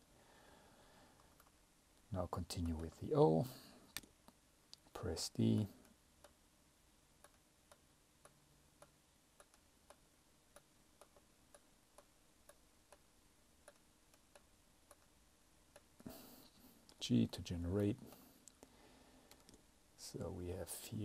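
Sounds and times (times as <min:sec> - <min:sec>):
computer mouse clicks: 0:01.2 - 0:01.6, 0:07.2 - 0:13.0, 0:13.6 - 0:15.1, 0:18.0 - 0:19.6.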